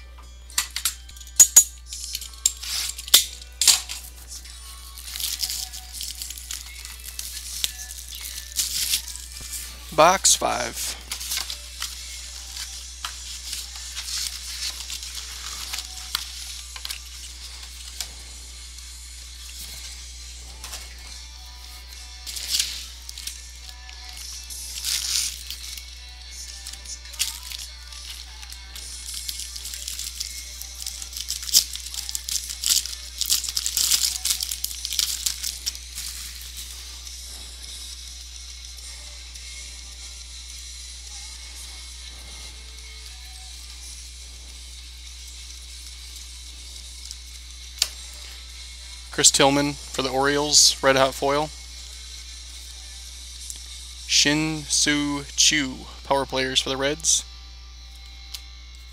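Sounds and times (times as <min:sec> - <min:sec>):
wrapper tearing and crinkling: 0:04.7 - 0:09.7, 0:11.0 - 0:18.1, 0:22.2 - 0:36.9.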